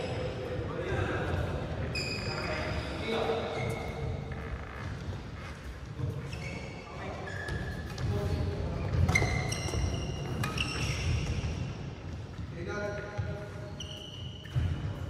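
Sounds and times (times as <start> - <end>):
shoes squeaking on court: 1.3 - 15.0
rackets hitting shuttlecock: 8.9 - 11.6.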